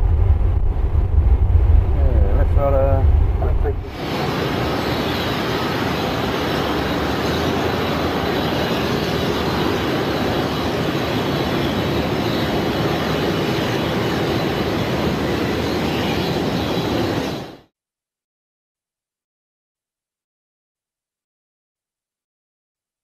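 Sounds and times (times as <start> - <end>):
jet engines roaring: 0.0 - 17.6.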